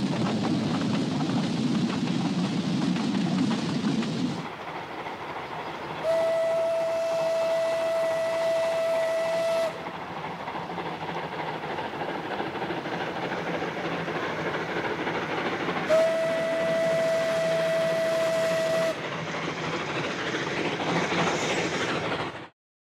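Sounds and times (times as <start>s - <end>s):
steam locomotive running: 0.0s - 22.5s
steam whistle blast: 6.0s - 9.9s, 15.9s - 19.0s.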